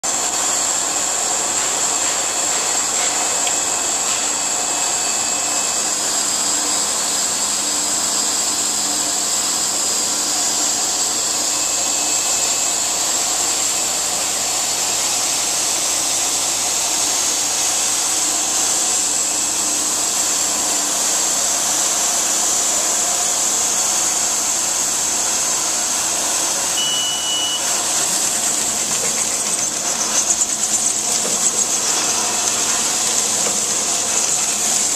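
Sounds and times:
packaging machine droning with hiss: 0:00.0 - 0:34.9.

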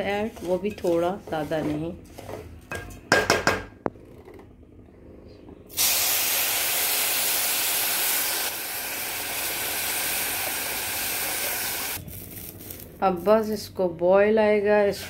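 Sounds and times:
water hissing in hot pan: 0:05.7 - 0:12.7.

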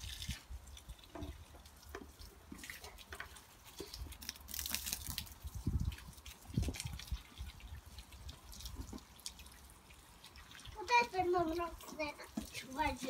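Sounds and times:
hose water dripping on leaves: 0:00.0 - 0:13.0.

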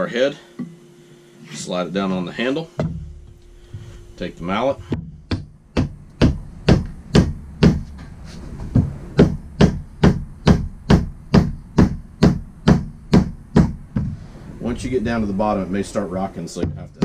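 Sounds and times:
mallet striking wooden handle: 0:02.8 - 0:08.0, 0:09.2 - 0:14.2.

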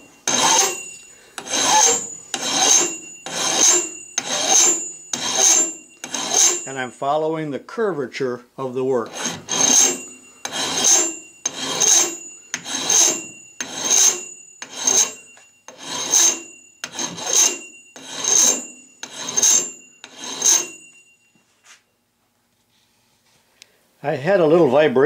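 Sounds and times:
faint high ringing: 0:00.0 - 0:25.0
file rasping on aluminum: 0:00.3 - 0:06.8, 0:09.1 - 0:20.9.

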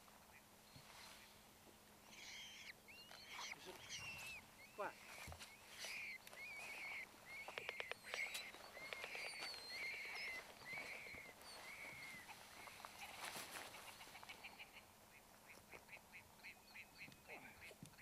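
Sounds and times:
faint bird chirps: 0:02.0 - 0:18.0
sharp clicks: 0:07.5 - 0:10.0.

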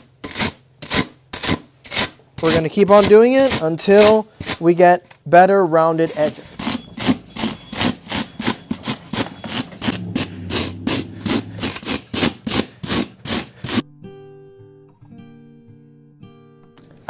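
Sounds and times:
comb scraping foam: 0:05.9 - 0:13.8
plucked guitar music: 0:13.8 - 0:17.0.

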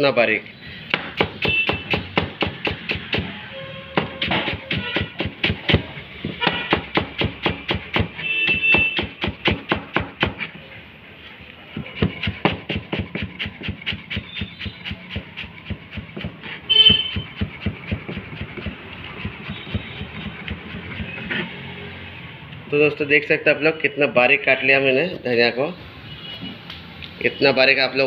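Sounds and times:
knife chopping on cutting board: 0:00.9 - 0:03.3, 0:04.0 - 0:10.5, 0:11.7 - 0:21.5.

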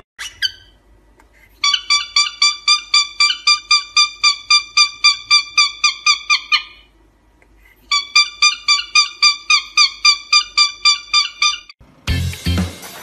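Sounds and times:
cockatiel chirping: 0:00.2 - 0:00.8, 0:01.6 - 0:06.9, 0:07.9 - 0:11.8.

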